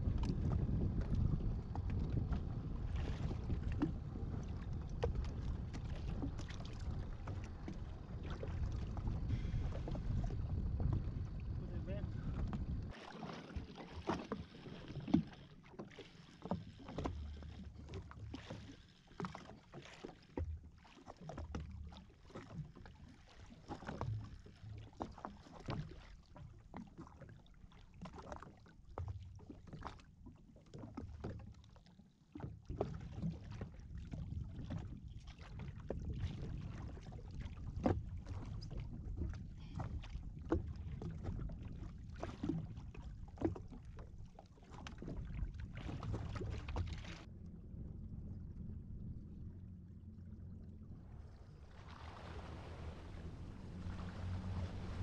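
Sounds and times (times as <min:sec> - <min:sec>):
wind buffeting microphone: 0:00.0 - 0:12.9
small waves lapping against hull: 0:00.0 - 0:55.0.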